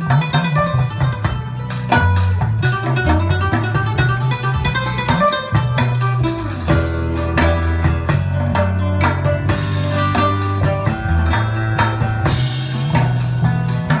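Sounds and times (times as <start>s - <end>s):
heavy bass line: 0.0s - 14.0s
plucked guitar notes: 0.0s - 14.0s.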